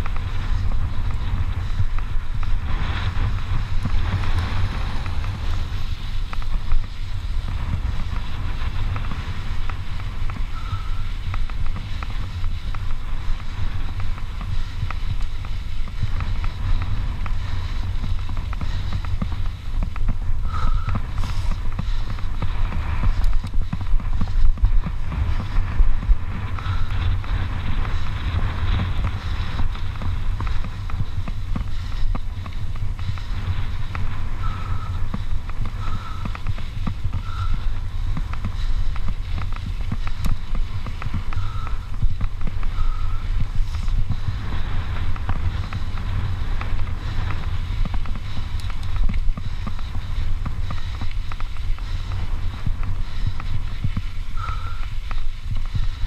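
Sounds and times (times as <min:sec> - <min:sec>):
tyres rolling on dirt: 0:00.0 - 0:56.0
wind buffeting microphone: 0:00.0 - 0:56.0.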